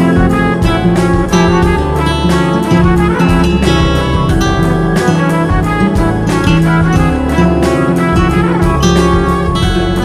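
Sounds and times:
bass line: 0:00.0 - 0:10.0
instrumental music with plucked guitar: 0:00.0 - 0:10.0.

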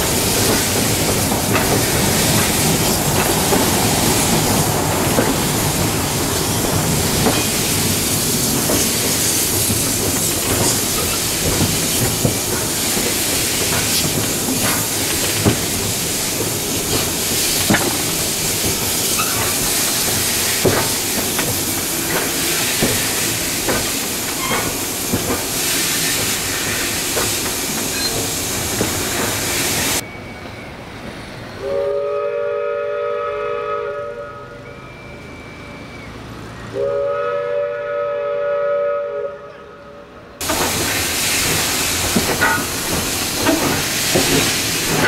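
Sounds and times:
wheels clicking over rail joints: 0:00.0 - 0:25.6, 0:40.4 - 0:45.0
steam locomotive hiss and rumble: 0:00.0 - 0:45.0
train whistle: 0:31.6 - 0:40.3.

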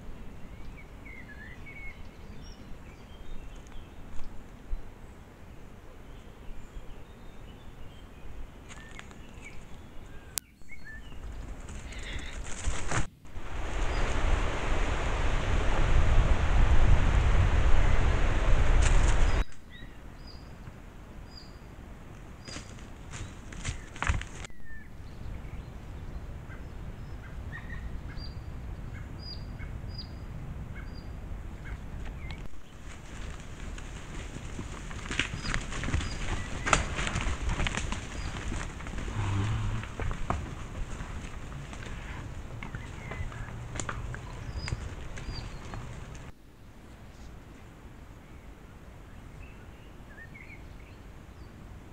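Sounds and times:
faint bird chirps: 0:06.0 - 0:12.4
bird calling: 0:08.7 - 0:13.1, 0:35.2 - 0:46.3
low rumble and hiss: 0:12.5 - 0:24.0.

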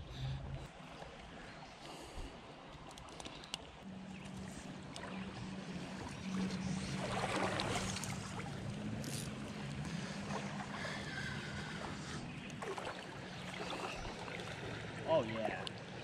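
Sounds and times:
low hum: 0:00.0 - 0:16.0
stream water rushing and sloshing: 0:00.0 - 0:16.0.

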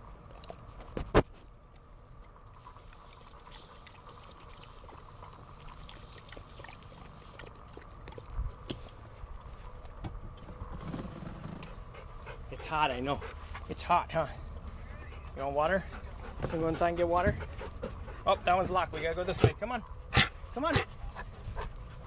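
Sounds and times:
water spraying from hose: 0:02.6 - 0:07.6
dog lapping water: 0:02.6 - 0:08.4.

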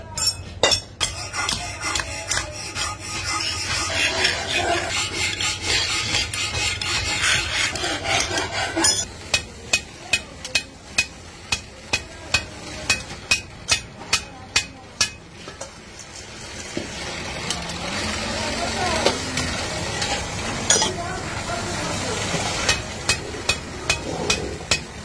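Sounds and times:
hand file rasping on metal: 0:01.0 - 0:09.1.

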